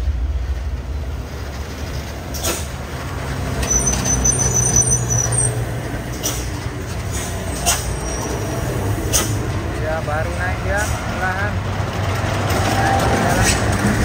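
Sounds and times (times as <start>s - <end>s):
diesel truck engine under load: 0.0s - 14.0s
air brake hisses: 2.3s - 2.7s, 6.1s - 6.5s, 7.1s - 8.4s, 9.0s - 9.4s.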